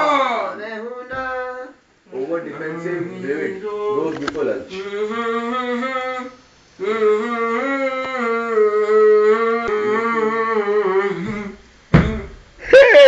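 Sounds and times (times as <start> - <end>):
young man humming: 4.7 - 13.0.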